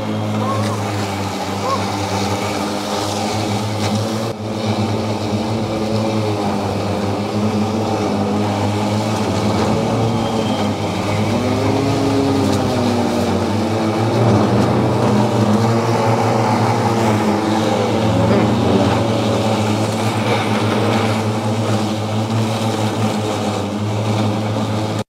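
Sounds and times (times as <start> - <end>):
electric mower humming: 0.0 - 25.0
rising and falling tone: 7.4 - 20.8.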